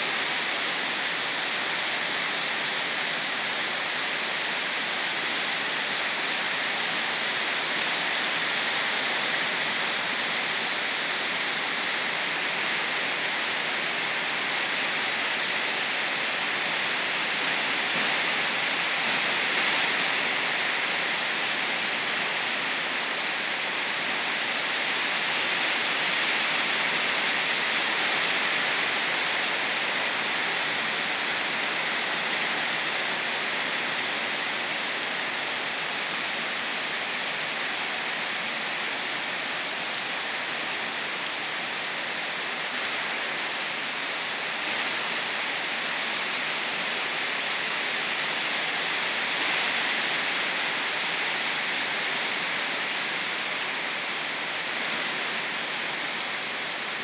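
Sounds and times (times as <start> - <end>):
heavy rain falling: 0.0 - 57.0.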